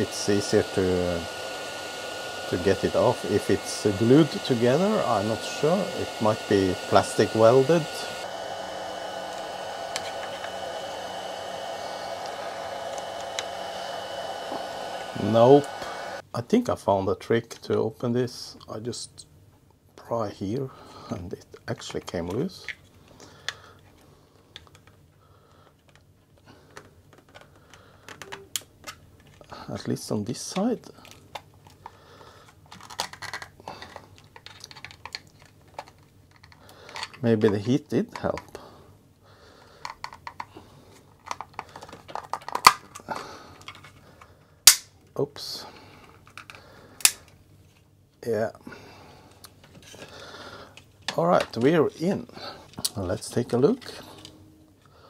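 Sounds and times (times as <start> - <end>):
hot air gun hissing: 0.0 - 16.2.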